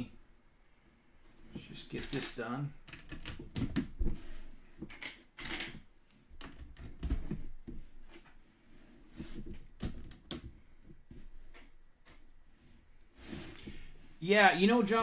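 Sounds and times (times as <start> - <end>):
plastic bricks clicking and clattering: 2.0 - 3.9.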